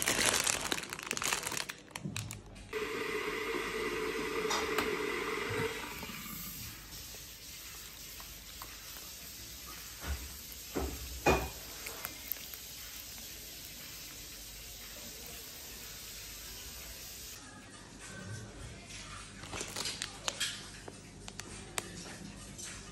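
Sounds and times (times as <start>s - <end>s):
water pouring into a bowl: 2.7s - 17.4s.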